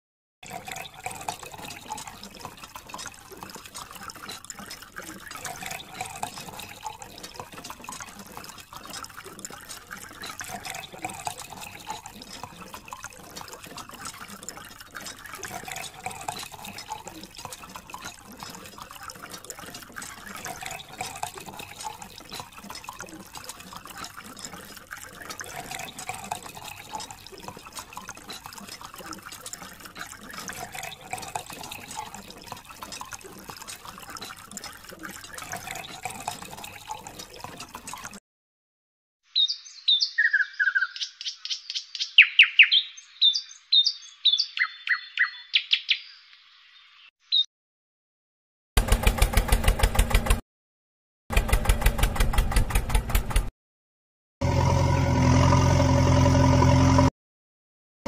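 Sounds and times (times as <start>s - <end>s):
water stream splashing: 0.4s - 38.2s.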